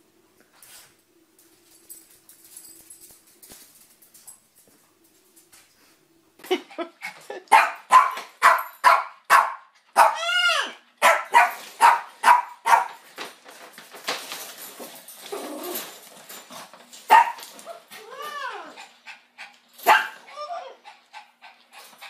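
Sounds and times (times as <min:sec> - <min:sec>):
small dog barking: 0:07.5 - 0:10.3, 0:11.0 - 0:13.0, 0:17.1 - 0:17.4, 0:19.8 - 0:20.2
dog yelp: 0:07.5 - 0:13.0, 0:17.1 - 0:18.7, 0:19.8 - 0:20.8.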